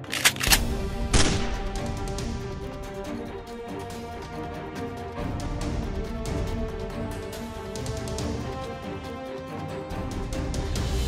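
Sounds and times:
sustained music notes: 0:00.0 - 0:11.0
steady drum beat: 0:00.7 - 0:08.7.

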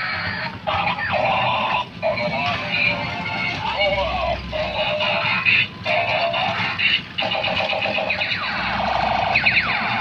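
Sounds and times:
electronic music from toy speaker: 0:00.0 - 0:10.0.

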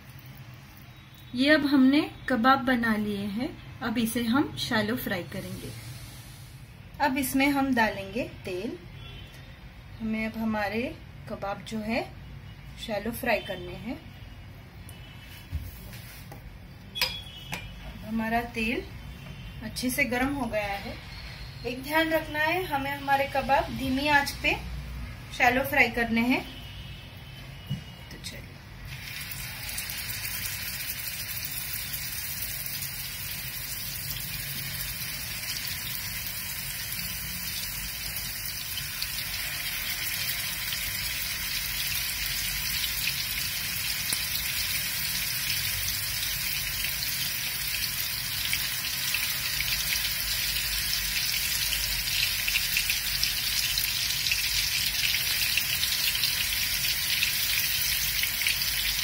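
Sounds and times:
oil sizzling in a frying pan: 0:28.9 - 0:59.0.

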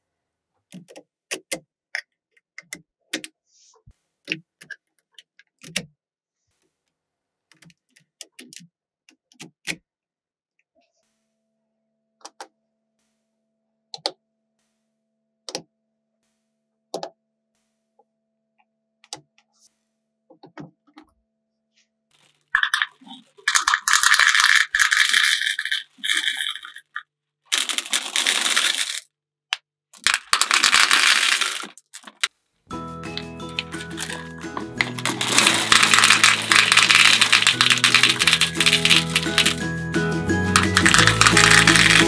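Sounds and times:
candies rattling into hopper: 0:22.1 - 0:29.1, 0:30.0 - 0:32.3, 0:33.4 - 0:39.8, 0:40.4 - 0:42.0
magnetic balls clicking: 0:22.5 - 0:29.0, 0:33.1 - 0:39.7, 0:40.4 - 0:42.0.

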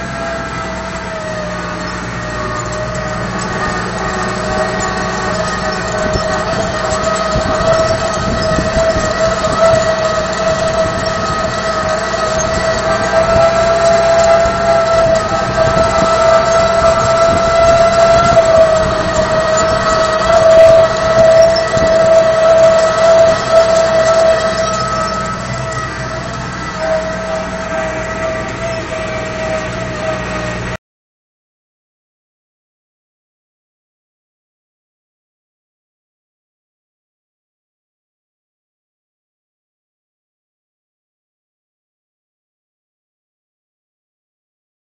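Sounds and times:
high whine: 0:00.0 - 0:30.8
tractor diesel engine under load: 0:00.0 - 0:30.8.

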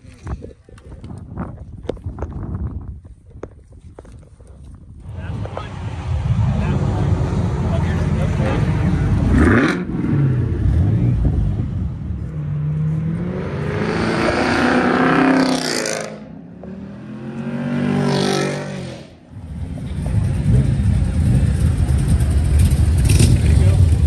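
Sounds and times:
car engine accelerating hard: 0:05.0 - 0:24.0.

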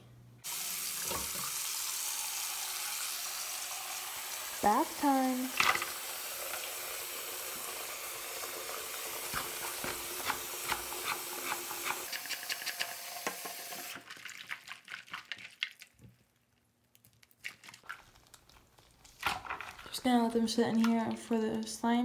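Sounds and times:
water running from a tap: 0:00.4 - 0:14.4.

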